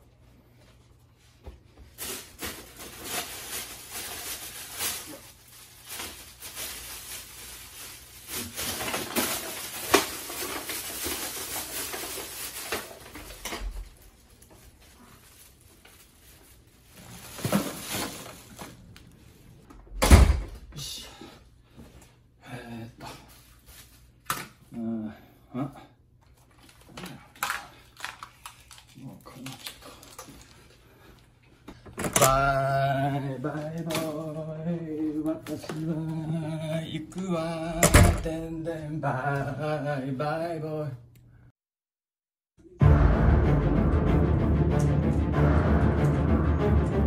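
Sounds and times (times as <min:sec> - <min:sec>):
plastic bags rustling: 0:01.8 - 0:19.7, 0:23.3 - 0:24.3, 0:26.3 - 0:38.5.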